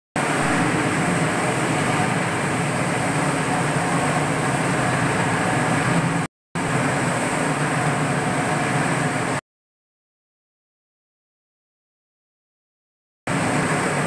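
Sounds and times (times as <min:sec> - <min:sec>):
floor grinding machine motor hum: 0:00.2 - 0:06.3.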